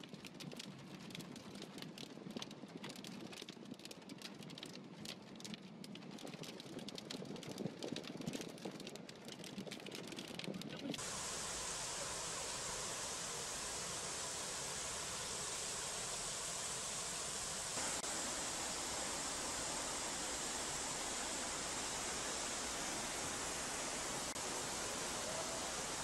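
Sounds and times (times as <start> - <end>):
heavy rain on a car: 5.0 - 26.0
flood water splashing: 11.0 - 26.0
steady hiss: 11.0 - 26.0.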